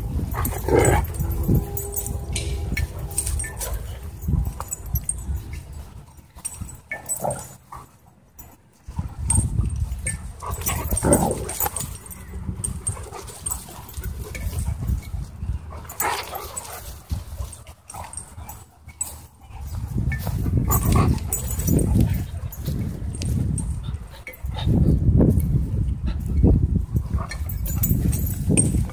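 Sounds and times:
dogs growling and yelping: 0:00.2 - 0:01.5, 0:06.6 - 0:08.0, 0:10.0 - 0:14.8.

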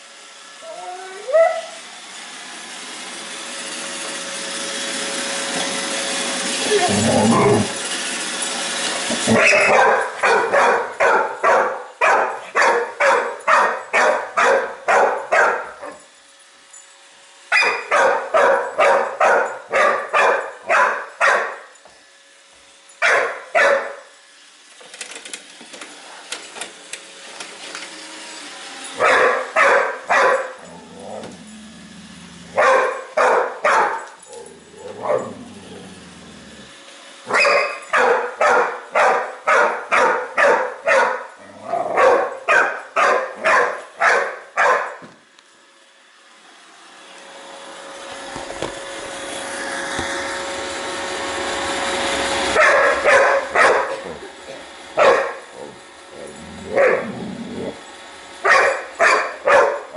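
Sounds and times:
large dog barking: 0:09.3 - 0:15.8, 0:17.5 - 0:21.6, 0:29.0 - 0:30.6, 0:32.5 - 0:34.1, 0:34.9 - 0:35.4, 0:37.3 - 0:45.0, 0:52.6 - 0:54.3, 0:55.0 - 0:57.8, 0:58.4 - 0:59.9.

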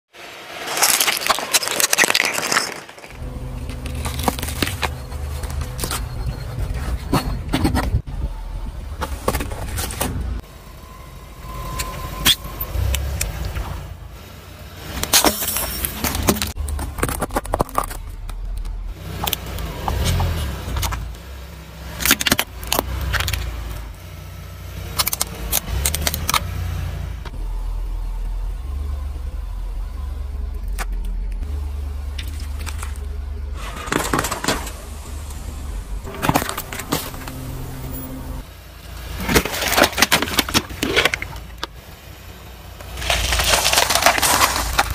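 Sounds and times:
tyre crushing objects with cracks: 0:00.5 - 0:06.0, 0:15.0 - 0:18.6, 0:33.6 - 0:34.8, 0:36.0 - 0:37.5, 0:39.0 - 0:41.8, 0:42.8 - 0:44.9
low car rumble: 0:03.0 - 0:44.9
drink can flattened under tyre: 0:39.2 - 0:41.7, 0:42.9 - 0:44.9.

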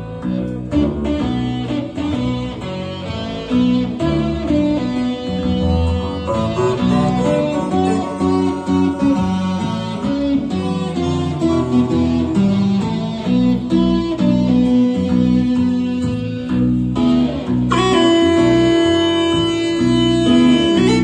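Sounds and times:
tapped stick bass and melody notes: 0:00.4 - 0:21.0
long held note: 0:06.3 - 0:10.0.

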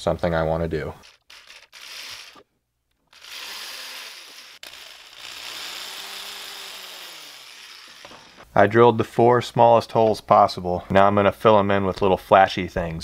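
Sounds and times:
rotary tool whirring: 0:01.0 - 0:08.4.

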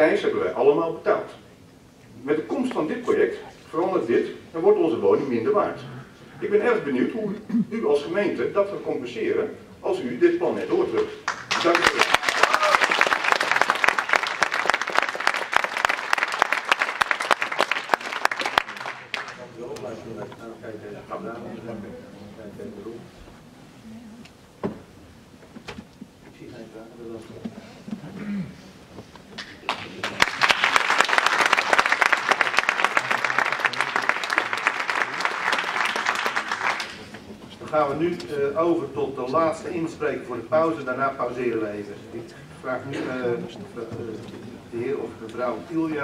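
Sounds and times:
audience applauding: 0:11.2 - 0:19.5, 0:29.4 - 0:37.3.

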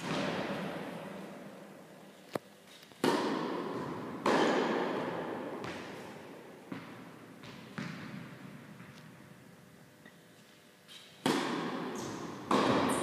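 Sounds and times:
tennis balls bouncing on court: 0:00.0 - 0:01.3, 0:02.7 - 0:09.2, 0:11.1 - 0:13.0
tennis balls hit by rackets: 0:00.0 - 0:01.6, 0:02.7 - 0:09.2, 0:10.9 - 0:13.0.

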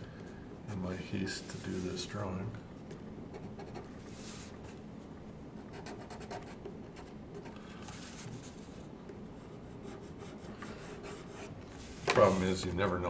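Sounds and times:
marker scratching on paper: 0:09.5 - 0:12.4.

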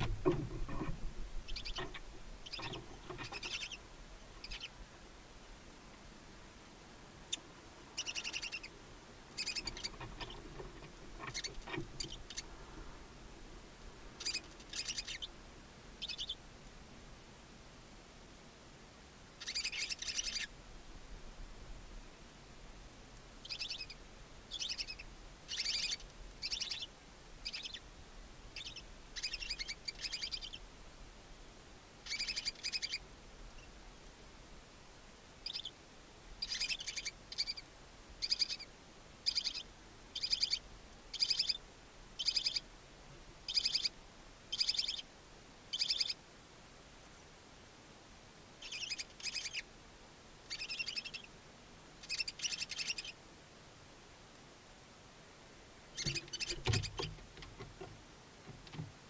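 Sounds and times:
owl rasping calls: 0:01.5 - 0:03.8, 0:08.0 - 0:08.8, 0:09.4 - 0:10.4, 0:11.2 - 0:12.6, 0:14.2 - 0:15.3, 0:16.0 - 0:16.4, 0:19.4 - 0:20.5, 0:23.4 - 0:27.9, 0:28.6 - 0:30.6, 0:32.0 - 0:33.0, 0:36.4 - 0:41.6, 0:42.2 - 0:42.7, 0:43.5 - 0:45.1, 0:45.7 - 0:46.2, 0:48.6 - 0:49.7, 0:50.5 - 0:51.3, 0:52.0 - 0:53.2, 0:55.9 - 0:57.0.

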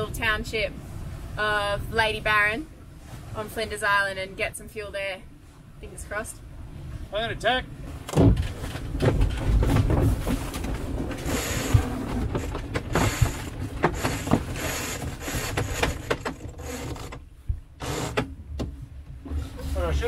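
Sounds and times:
low wind rumble: 0:00.0 - 0:20.0
lines and gear knocking and rattling: 0:08.1 - 0:17.2.

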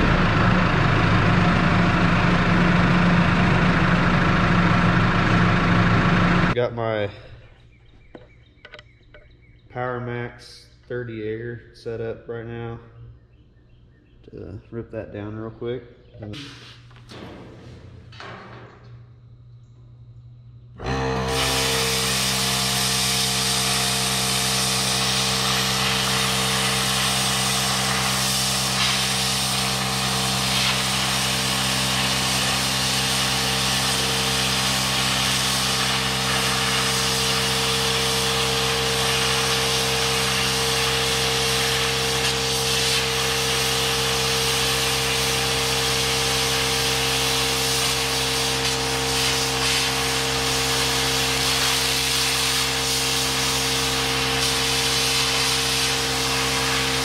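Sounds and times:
plasma cutter hissing: 0:21.3 - 0:37.5, 0:54.3 - 0:57.0.

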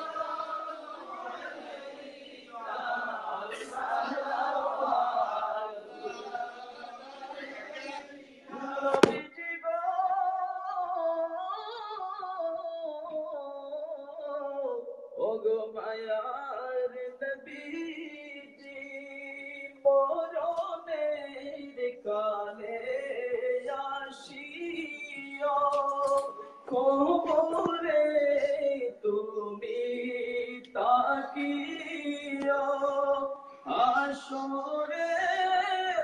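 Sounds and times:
man singing devotional song: 0:08.5 - 0:36.0.

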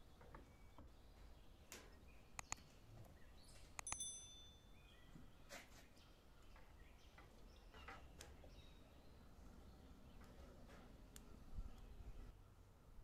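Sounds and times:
faint bird chirps: 0:00.0 - 0:10.4
soft clicks: 0:01.7 - 0:02.6, 0:03.6 - 0:04.1
short bright bell ding: 0:03.8 - 0:04.8.

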